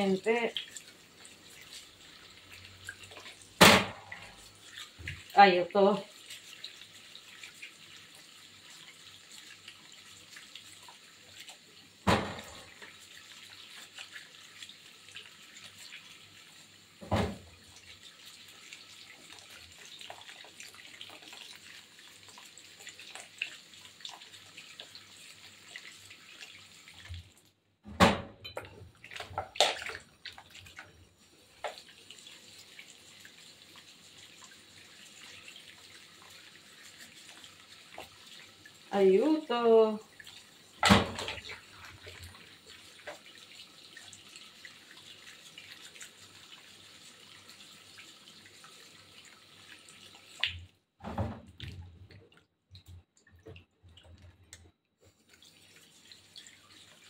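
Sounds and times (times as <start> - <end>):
splashing water: 0.0 - 16.4, 17.0 - 27.4, 28.1 - 46.6, 47.2 - 57.0
knocks in sink: 3.6 - 4.2, 12.0 - 12.7, 17.0 - 17.5, 27.9 - 28.7, 40.8 - 41.4, 51.0 - 51.6
tap running into sink: 12.0 - 13.0, 17.0 - 17.6, 27.9 - 30.0, 40.8 - 41.6, 50.4 - 51.8.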